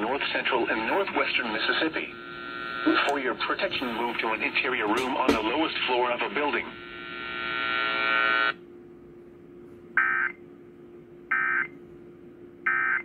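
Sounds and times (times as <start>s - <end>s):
steady buzzing tone: 0.0s - 8.6s
low steady hum: 0.0s - 13.0s.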